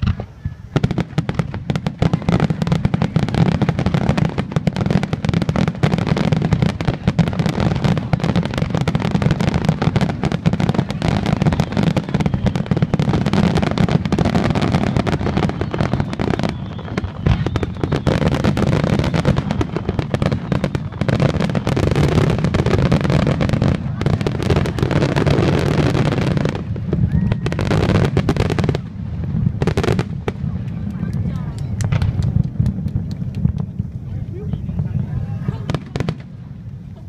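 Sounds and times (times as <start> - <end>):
firework shells bursting: 0.0 - 21.0, 30.0 - 34.6.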